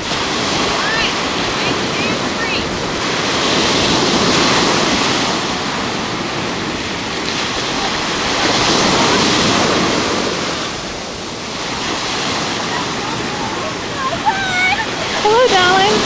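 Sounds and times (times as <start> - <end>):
ocean surf breaking on beach: 0.0 - 16.0.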